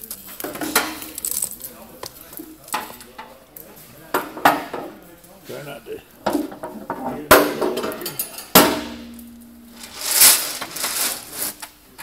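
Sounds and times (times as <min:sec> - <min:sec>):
hissing scrape in corn: 0:09.8 - 0:11.7.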